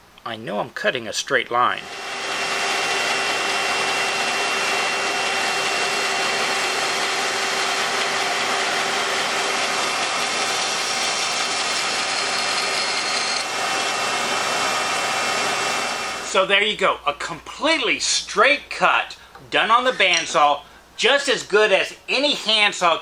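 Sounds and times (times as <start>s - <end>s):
band saw cutting wood: 1.8s - 16.3s.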